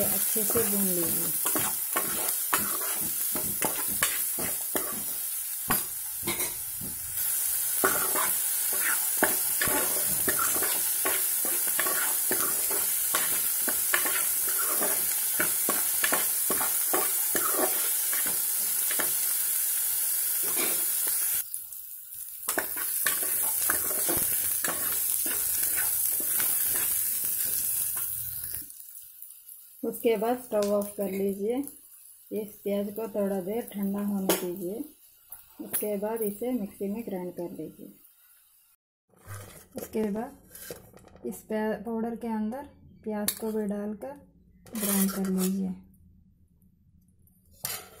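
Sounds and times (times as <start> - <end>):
onions sizzling in oil: 0.0 - 39.4
spatula scraping metal pot: 1.3 - 5.2, 7.8 - 18.3, 22.5 - 27.0, 39.2 - 41.0, 44.7 - 45.6.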